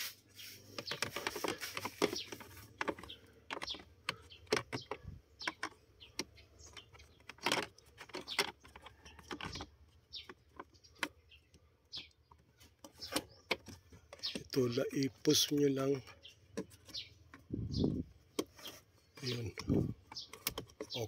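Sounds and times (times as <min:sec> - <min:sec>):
plastic clicks and taps: 0:19.3 - 0:21.0.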